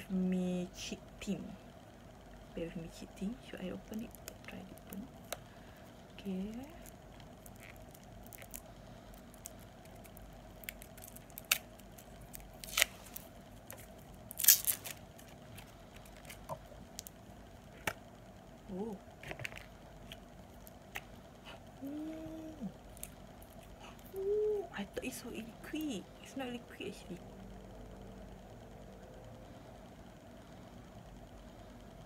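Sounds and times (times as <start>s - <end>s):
packaging being opened by hand: 9.2s - 17.1s.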